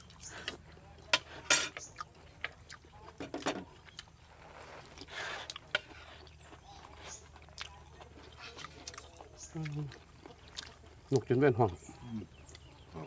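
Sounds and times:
spoons clinking on ceramic plates: 1.1 - 1.9.

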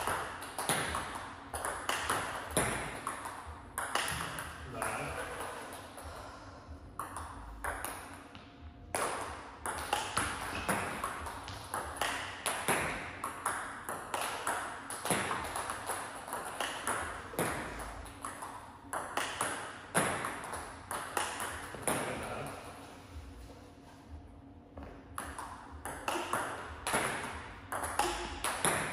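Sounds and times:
table tennis balls clicking: 0.0 - 6.0, 8.9 - 22.3, 25.1 - 28.9.

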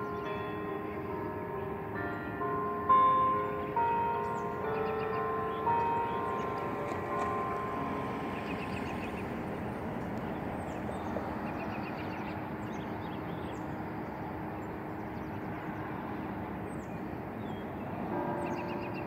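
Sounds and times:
road traffic: 0.0 - 19.0
small birds chirping: 8.1 - 19.0.

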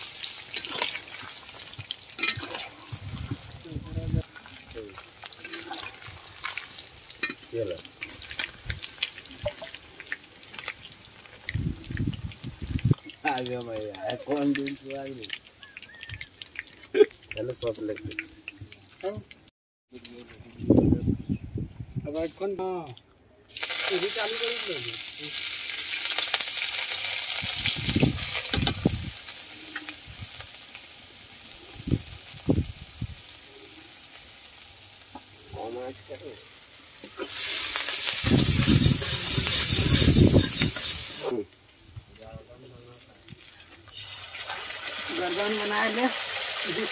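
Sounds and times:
chicken sizzling in oil: 0.0 - 17.0, 23.5 - 41.8, 43.0 - 46.9
metal spatula scraping wok: 37.1 - 41.3.

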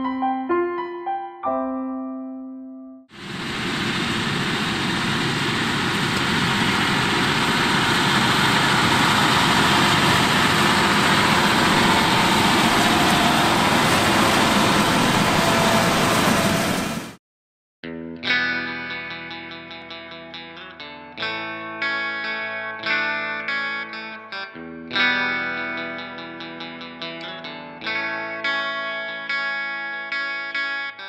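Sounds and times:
tractor engine under load: 3.2 - 17.2.

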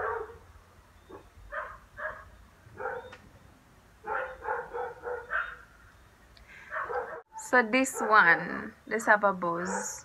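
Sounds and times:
dog barking: 0.0 - 0.4, 1.1 - 3.2, 4.0 - 5.7, 6.7 - 7.3, 7.9 - 8.6, 9.7 - 10.0.

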